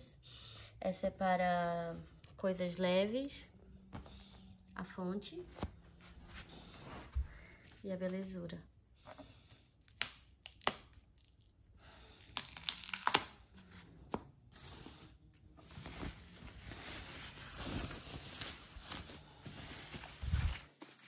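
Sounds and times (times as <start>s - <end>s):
protective sheet ripping: 12.3s - 13.5s
plastic wrap rustling and crinkling: 12.3s - 21.0s.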